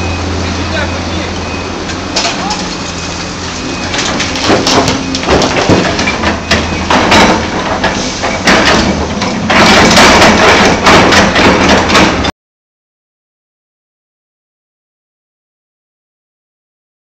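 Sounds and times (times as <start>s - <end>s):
excavator diesel engine: 0.0s - 12.3s.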